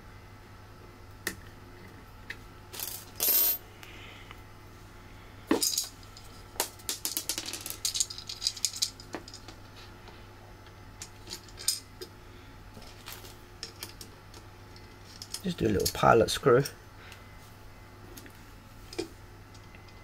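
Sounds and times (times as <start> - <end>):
metal screws and nuts rattling: 6.9 - 9.5.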